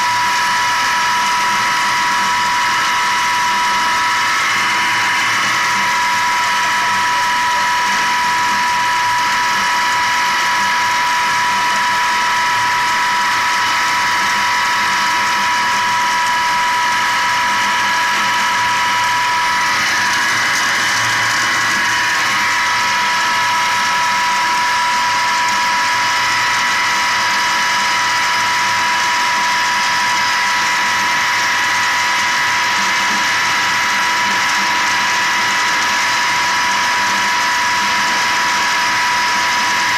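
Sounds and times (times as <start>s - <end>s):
pump high whine: 0.0s - 39.9s.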